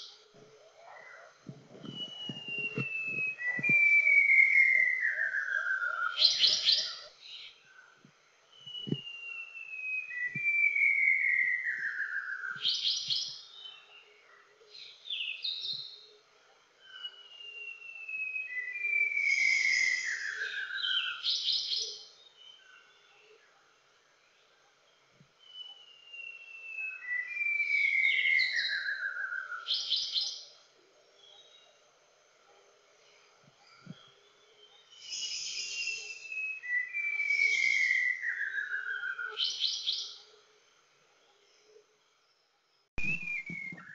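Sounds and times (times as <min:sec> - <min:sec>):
bird whistling song: 0:01.8 - 0:07.5, 0:08.5 - 0:14.0, 0:16.8 - 0:23.3, 0:25.4 - 0:30.6, 0:33.6 - 0:40.3, 0:43.0 - 0:43.9.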